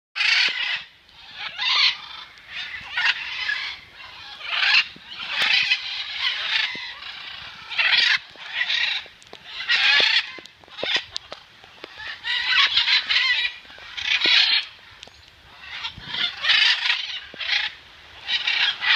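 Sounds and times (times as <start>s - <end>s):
macaws squawking: 0.2s - 18.9s.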